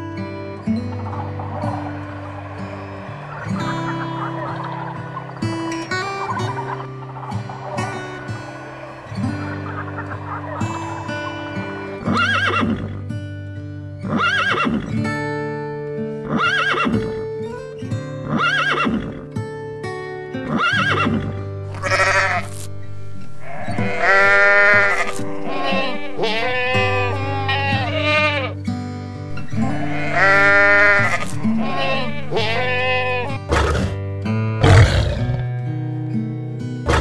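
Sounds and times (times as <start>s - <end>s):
background music: 0.0s - 37.0s
animal cries: 0.8s - 13.0s, 20.6s - 28.5s, 29.3s - 34.0s
goat bleating: 21.7s - 28.6s, 29.3s - 33.9s.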